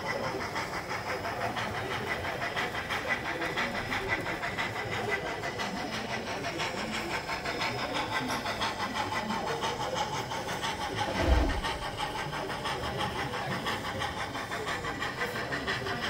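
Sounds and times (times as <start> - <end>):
model locomotive chuffing: 0.0 - 16.0
low thump: 11.0 - 12.2.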